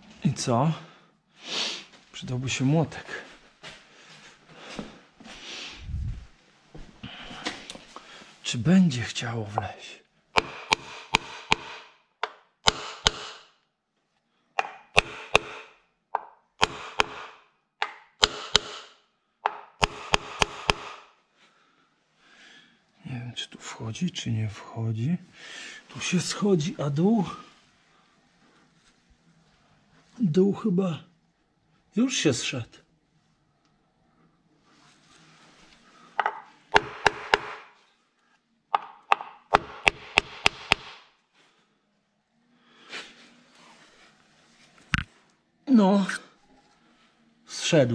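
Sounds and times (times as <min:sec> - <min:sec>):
hammer tapping metal: 0:10.4 - 0:13.4, 0:14.6 - 0:21.0, 0:36.2 - 0:37.7, 0:38.8 - 0:41.0.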